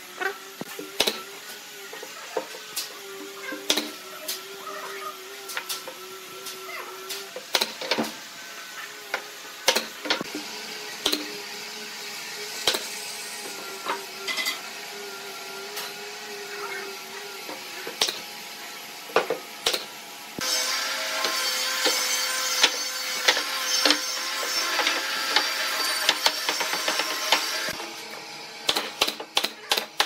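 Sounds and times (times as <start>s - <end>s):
nail gun firing nails: 28.6s - 30.0s.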